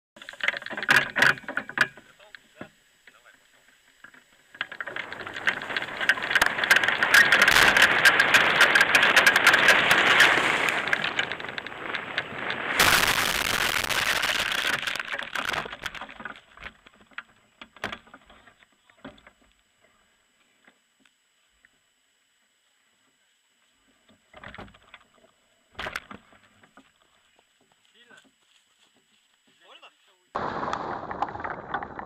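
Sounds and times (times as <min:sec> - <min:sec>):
knocks and rustles: 0:00.2 - 0:02.7, 0:03.6 - 0:19.6
wind crackling on microphone: 0:04.4 - 0:17.0, 0:30.4 - 0:32.0
scraping through dry grass: 0:04.7 - 0:16.2
glider crashing into ground: 0:04.7 - 0:16.5, 0:30.4 - 0:32.0.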